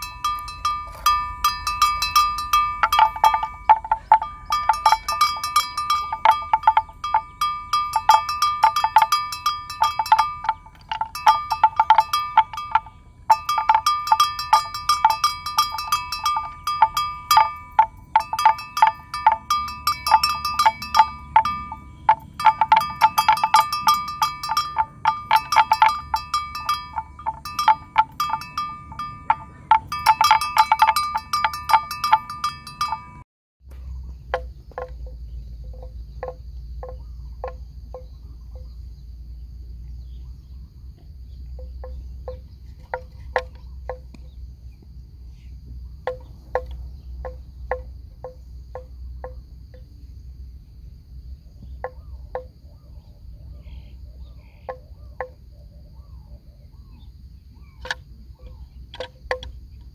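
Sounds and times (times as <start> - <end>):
metal livestock bell clanking: 0.0 - 33.2, 34.4 - 38.8, 41.5 - 44.4, 46.0 - 49.9, 51.7 - 52.6, 57.6 - 59.9.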